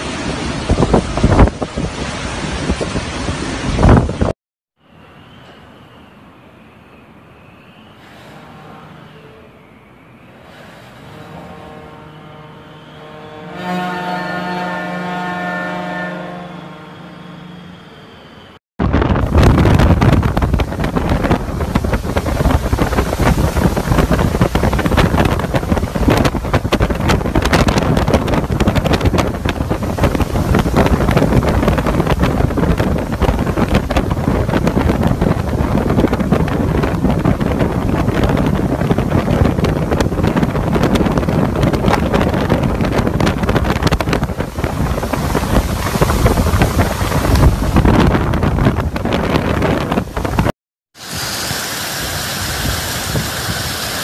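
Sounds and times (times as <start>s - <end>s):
wind and rain buffeting microphone: 0.0s - 4.4s, 18.8s - 54.0s.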